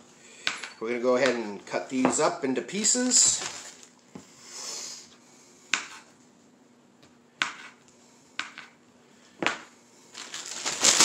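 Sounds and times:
knife chopping on countertop: 5.7s - 6.1s, 7.4s - 7.8s, 8.4s - 8.8s.

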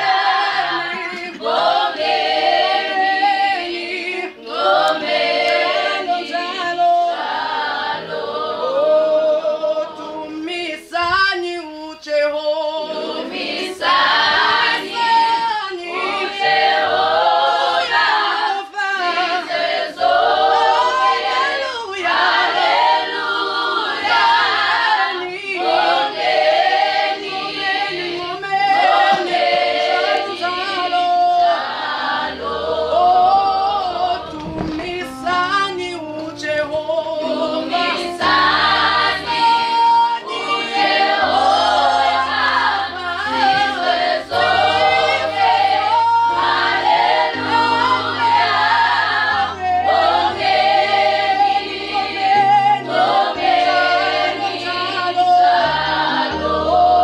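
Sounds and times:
choir singing gospel in harmony: 0.0s - 57.0s
keyboard low bass notes: 31.5s - 57.0s.

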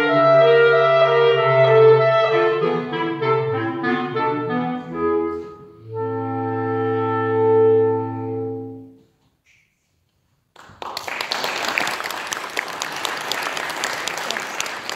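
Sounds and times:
clarinet quartet chord: 0.0s - 9.0s
audience applause: 10.6s - 14.9s.

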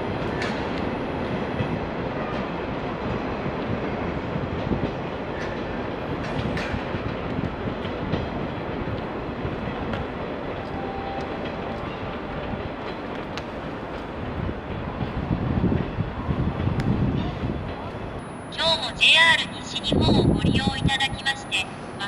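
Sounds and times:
electric train rumbling: 0.0s - 22.0s
wheels clicking over rail joints: 4.6s - 15.7s.

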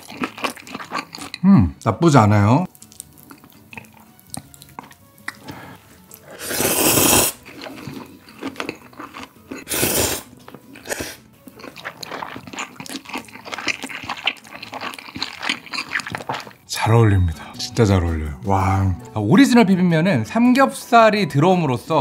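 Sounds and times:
wet chewing: 0.0s - 1.4s, 2.6s - 16.6s
person slurping noodles: 5.3s - 16.5s.

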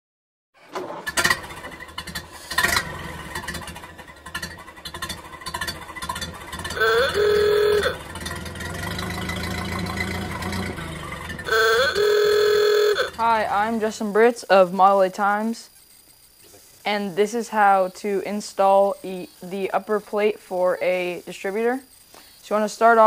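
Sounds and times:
car engine running: 1.0s - 13.9s
car horn honking: 6.7s - 8.3s, 11.4s - 13.5s.

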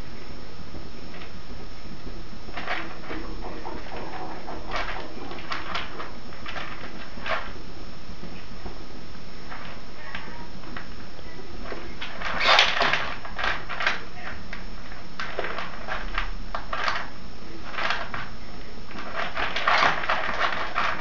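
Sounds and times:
rats scrabbling on a surface: 2.5s - 7.6s, 9.5s - 21.0s.

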